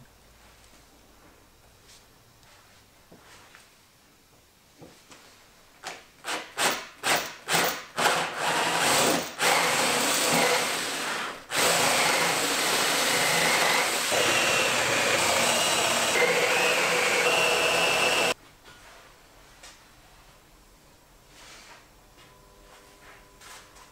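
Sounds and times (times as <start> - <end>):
cordless drill boring into wood: 6.3 - 18.4.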